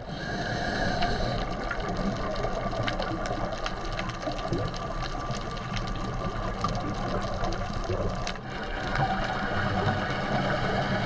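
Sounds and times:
underwater hiss and hum: 0:00.0 - 0:11.0
small scattered clicks: 0:01.4 - 0:08.4.

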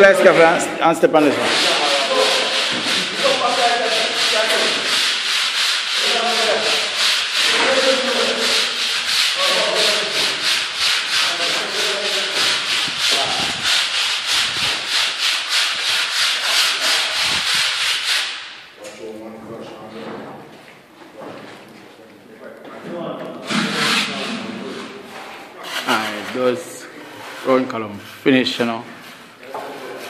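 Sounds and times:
plastering tool scraping: 0:01.2 - 0:18.6, 0:23.4 - 0:30.0.

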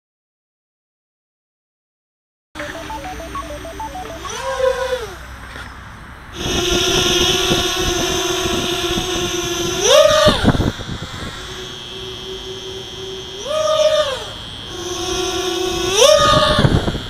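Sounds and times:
short electronic beeps: 0:02.6 - 0:04.6
quadcopter motors whining: 0:06.4 - 0:17.0.

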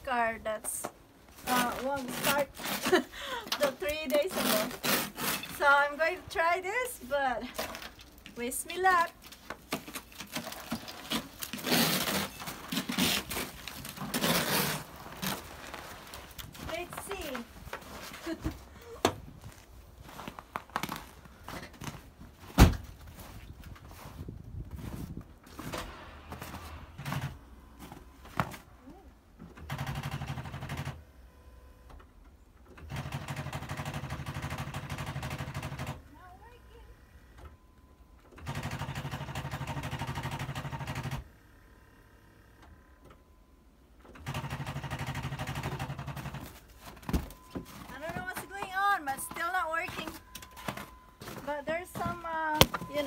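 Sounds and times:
ice scraper scraping windshield: 0:01.5 - 0:05.8, 0:09.8 - 0:16.0.

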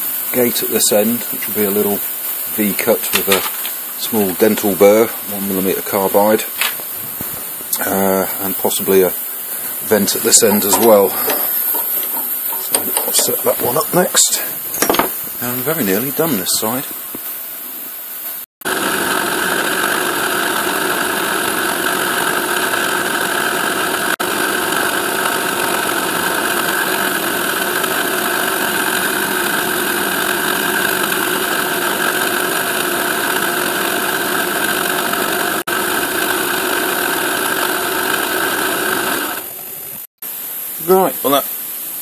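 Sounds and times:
milling machine spindle whirring: 0:02.7 - 0:17.1, 0:18.7 - 0:40.1.

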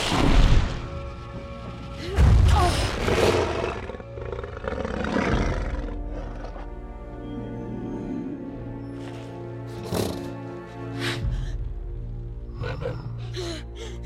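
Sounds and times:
dramatic orchestral music: 0:00.0 - 0:14.0
dragon roaring: 0:02.9 - 0:06.6.

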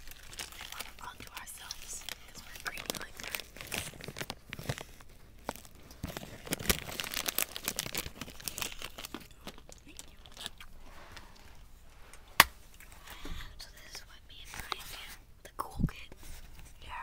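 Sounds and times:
close crackling and rustling: 0:00.0 - 0:17.0.

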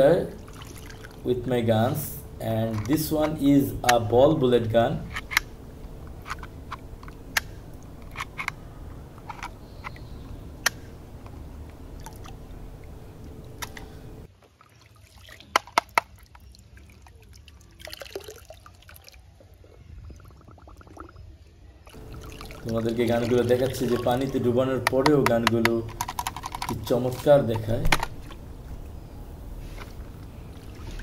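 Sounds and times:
water sloshing and dripping: 0:00.3 - 0:02.0, 0:05.1 - 0:29.0, 0:29.6 - 0:31.0
plastic toy clicks: 0:24.8 - 0:27.2.

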